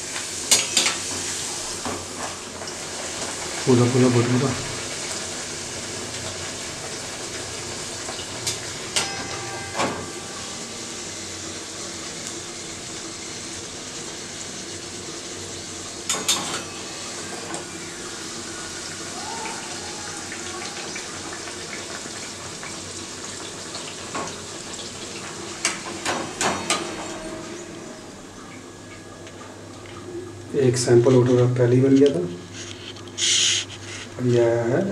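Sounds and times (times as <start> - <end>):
deep-frying sizzle in oil: 0.0 - 26.6.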